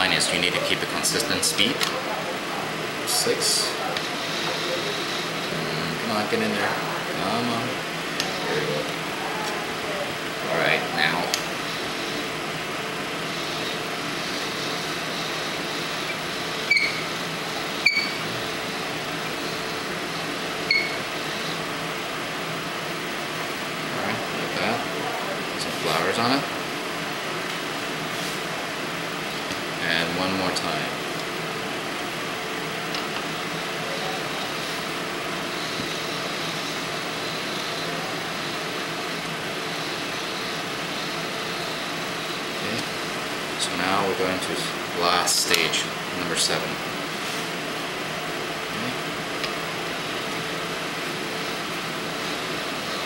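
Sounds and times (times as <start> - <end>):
steady air conditioner hum: 0.0 - 53.0.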